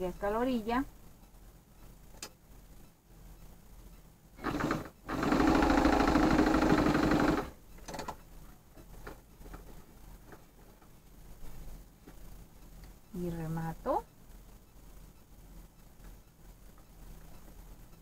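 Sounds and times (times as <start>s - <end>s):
sewing machine stitching: 4.4s - 8.0s.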